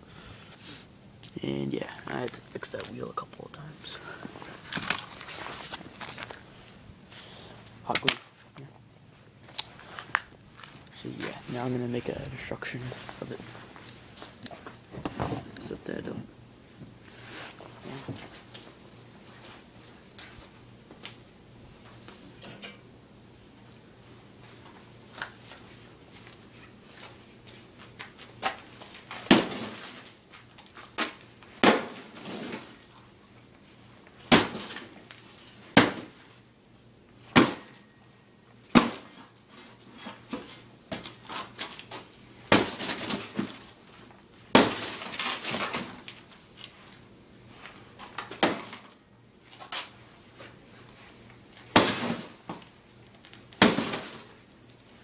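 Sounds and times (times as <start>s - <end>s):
cardboard crumpling: 4.4s - 6.5s
cardboard being smashed: 28.0s - 32.8s, 34.2s - 35.1s, 35.7s - 36.4s, 37.3s - 37.8s, 38.7s - 39.4s, 40.0s - 43.8s, 44.5s - 46.3s, 48.0s - 49.0s, 51.6s - 54.5s.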